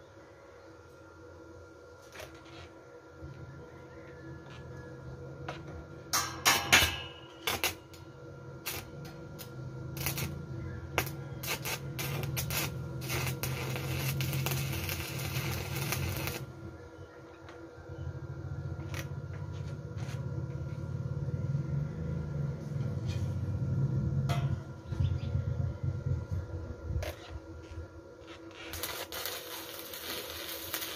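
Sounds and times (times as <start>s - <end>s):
low hum: 0.0s - 30.9s
arc welding crackle: 2.0s - 3.4s, 5.4s - 17.6s, 18.7s - 20.8s, 27.0s - 30.9s.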